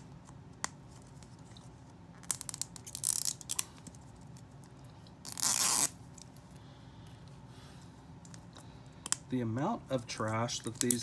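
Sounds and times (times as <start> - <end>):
packaging tearing rip: 2.2 - 3.7, 5.2 - 6.0.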